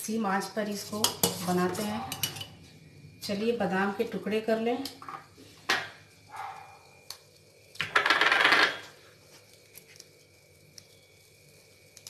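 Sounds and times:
metallic clink of utensils: 0:01.0 - 0:02.6.

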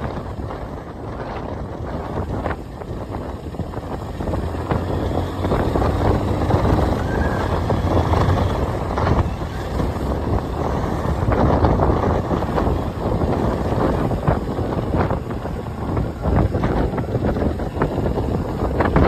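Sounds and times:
motorcycle engine rumble: 0:00.0 - 0:19.0
wind buffeting microphone: 0:00.0 - 0:19.0.

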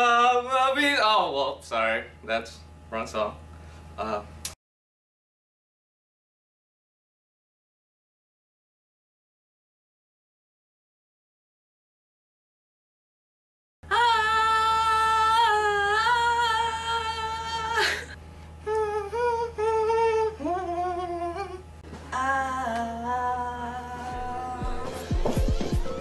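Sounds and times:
low steady hum: 0:13.8 - 0:26.0
person humming wordless notes: 0:13.9 - 0:26.0.

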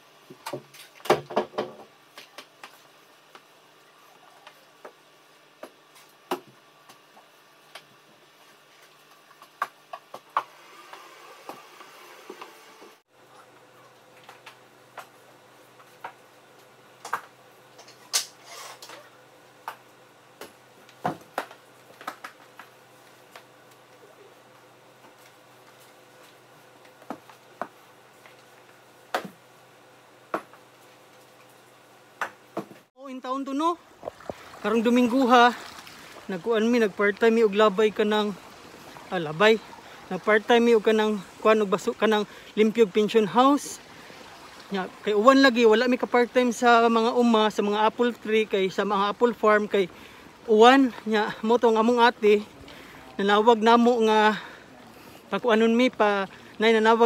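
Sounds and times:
faint steady hum: 0:00.0 - 0:57.0.

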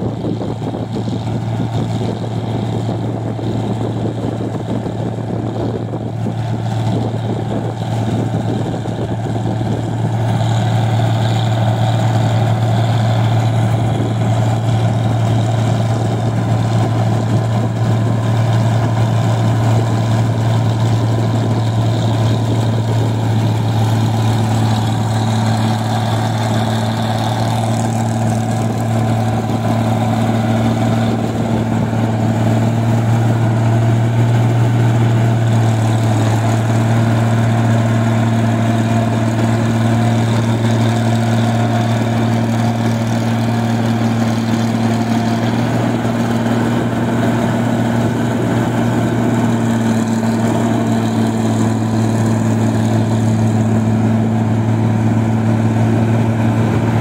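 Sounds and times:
combine harvester engine hum: 0:00.0 - 0:57.0.

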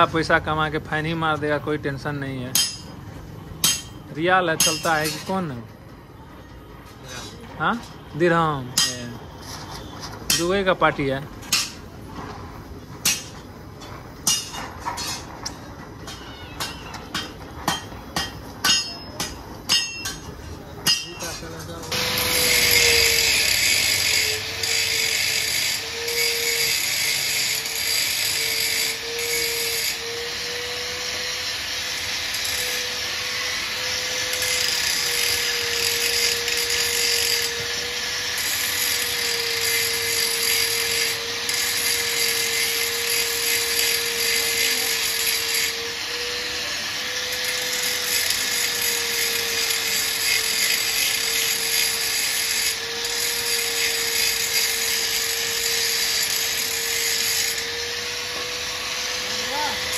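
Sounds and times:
angle grinder grinding metal: 0:20.9 - 0:59.9.

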